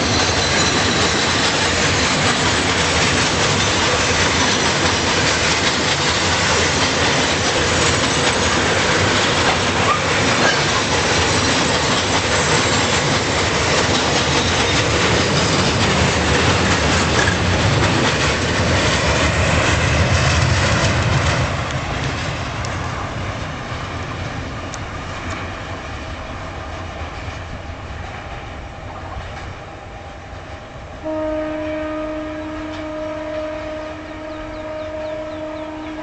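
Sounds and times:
freight train wheels clattering: 0:00.0 - 0:30.9
train horn long note: 0:31.0 - 0:36.0.

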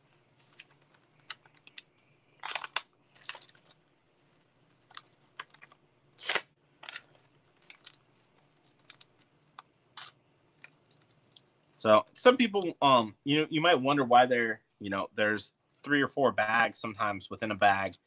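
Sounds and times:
plastic bags crinkling: 0:00.4 - 0:03.8, 0:04.7 - 0:11.4.

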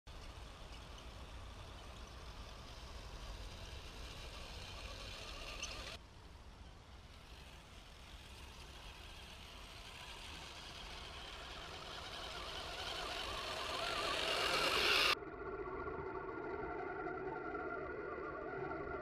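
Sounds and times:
electric motors of rc crawler: 0:00.1 - 0:06.0, 0:06.7 - 0:15.2.

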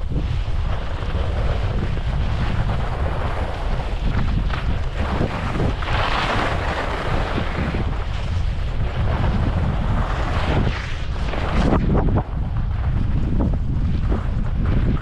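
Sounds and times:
skis hissing over snow: 0:00.0 - 0:12.0
wind buffeting microphone: 0:00.0 - 0:15.0.

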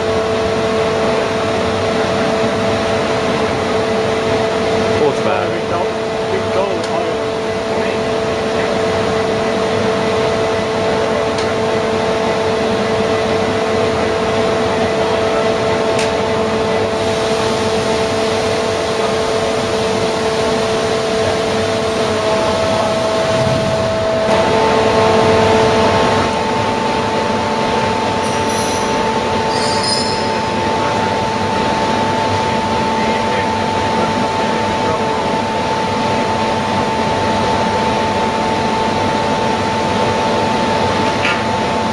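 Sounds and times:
machine mechanical drone: 0:00.0 - 0:41.9
faint high squeaks: 0:29.5 - 0:30.4.

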